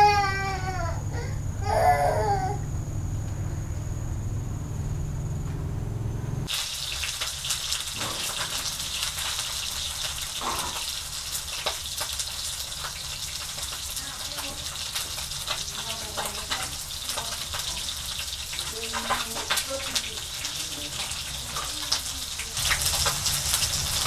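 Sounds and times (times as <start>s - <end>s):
water running and splashing: 6.5s - 24.0s.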